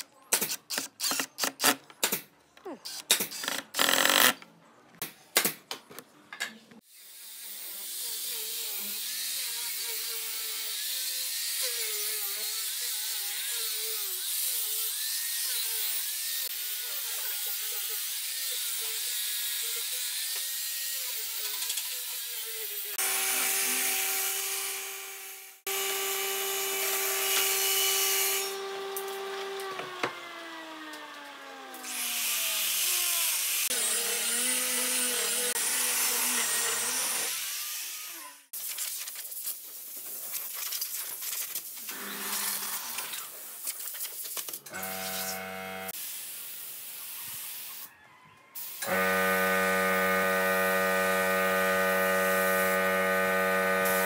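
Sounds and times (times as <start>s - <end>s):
power tool running freely: 23.0s - 31.3s, 44.7s - 46.0s, 48.8s - 54.0s
angle grinder sanding wood: 44.7s - 46.0s, 48.8s - 54.0s
power tool motor whirring: 44.7s - 46.0s, 48.8s - 54.0s.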